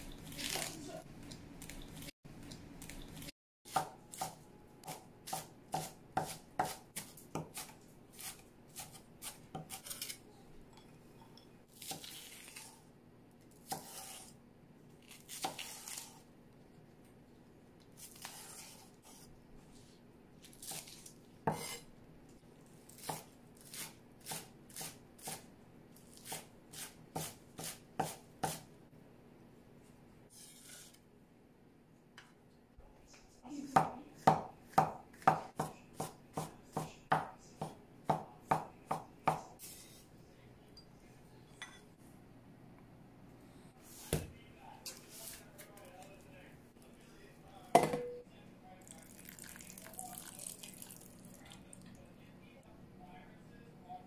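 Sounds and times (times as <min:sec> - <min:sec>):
cleaver chopping on cutting board: 0:03.7 - 0:09.9.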